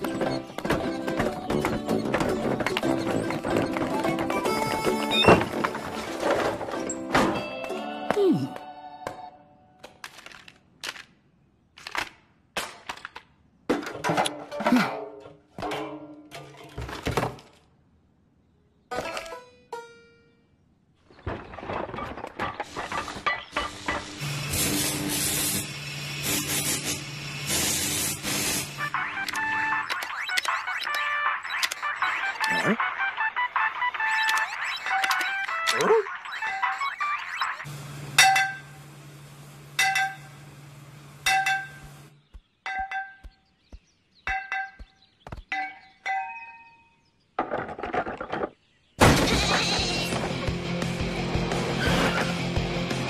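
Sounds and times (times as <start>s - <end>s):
music: 0.0s - 9.6s, 28.8s - 36.0s, 49.3s - 53.0s
welding hissing crackle: 22.6s - 29.1s
hammer clanging on metal: 39.8s - 40.3s, 41.3s - 42.0s, 42.6s - 43.4s, 44.3s - 46.6s.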